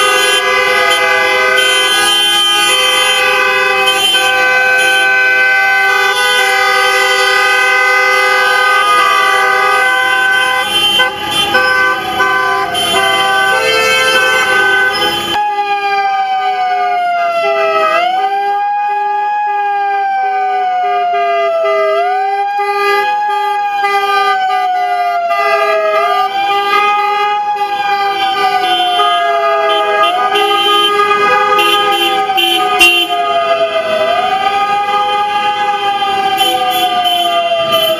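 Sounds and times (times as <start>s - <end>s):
car horns honking: 0.0s - 15.4s, 25.3s - 33.7s, 34.9s - 37.9s
siren wailing: 0.0s - 37.9s.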